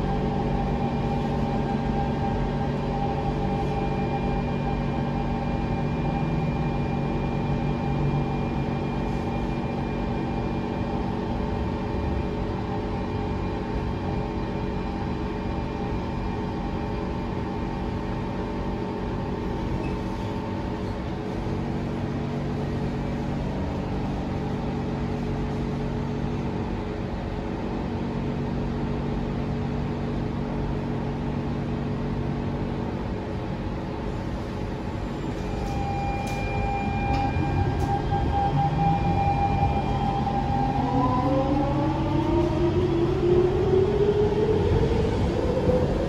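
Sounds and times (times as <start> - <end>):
train electrical hum: 0.0 - 46.0
traction inverter tones rising: 35.5 - 46.0.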